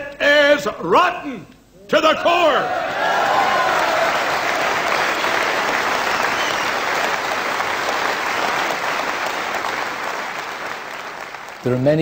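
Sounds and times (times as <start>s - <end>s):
large crowd applauding: 2.7s - 12.0s.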